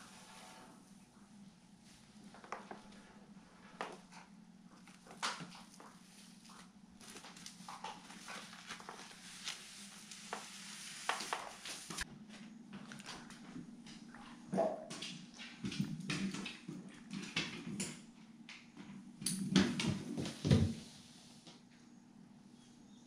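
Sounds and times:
plastic crinkling and rustling: 0:04.8 - 0:12.0.

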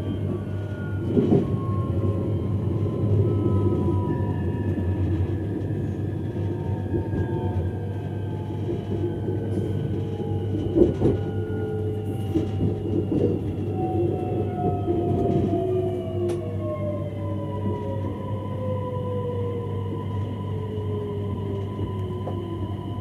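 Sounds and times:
train rumbling over rails: 0:00.0 - 0:23.0.

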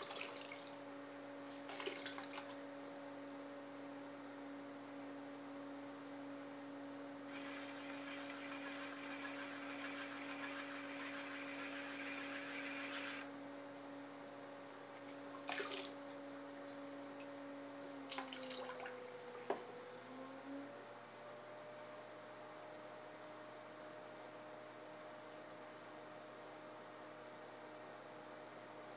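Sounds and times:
pottery wheel motor humming: 0:07.2 - 0:13.4.

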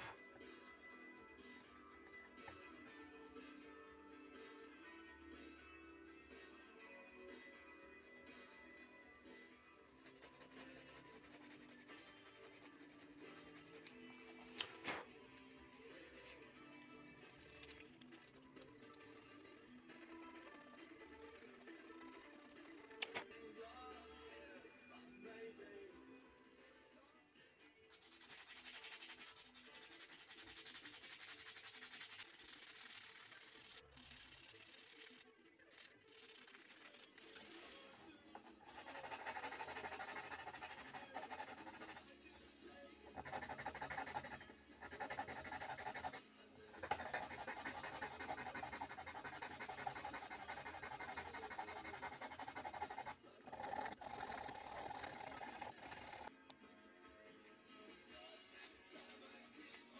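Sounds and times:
sandpaper scratching on wood: 0:09.9 - 0:13.9, 0:20.0 - 0:23.0, 0:27.9 - 0:37.8, 0:38.8 - 0:42.0, 0:43.2 - 0:46.2, 0:46.8 - 0:56.3
file rasping on wood: 0:46.8 - 0:56.3.

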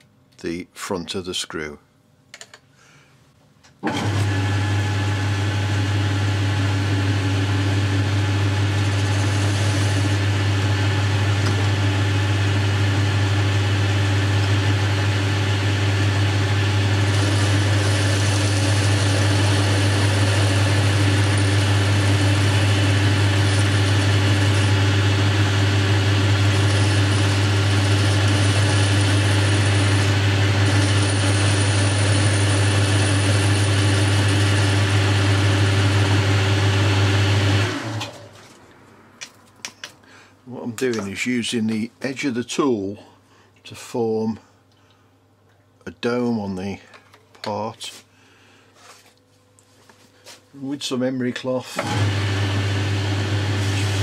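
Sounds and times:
lathe motor humming: 0:03.9 - 0:38.3, 0:51.8 - 0:54.0.

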